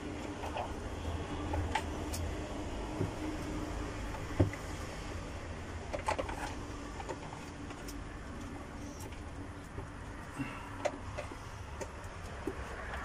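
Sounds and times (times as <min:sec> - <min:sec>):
steady low hum: 0:00.0 - 0:13.0
plastic parts clicking and knocking: 0:05.9 - 0:13.0.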